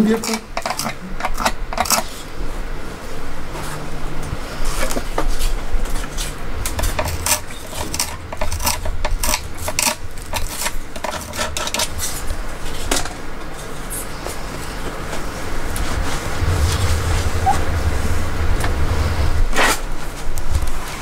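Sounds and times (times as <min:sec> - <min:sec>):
low steady rumble: 0:15.9 - 0:20.8.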